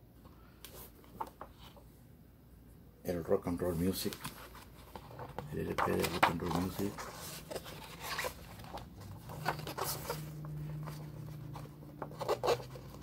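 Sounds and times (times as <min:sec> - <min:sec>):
book pages rustling: 0:03.6 - 0:13.0.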